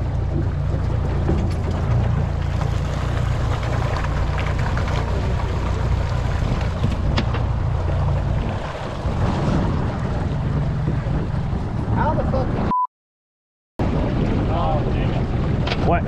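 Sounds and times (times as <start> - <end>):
outboard motor running: 0.0 - 12.4, 13.8 - 16.0
wind noise on microphone: 4.6 - 12.7, 13.8 - 16.0.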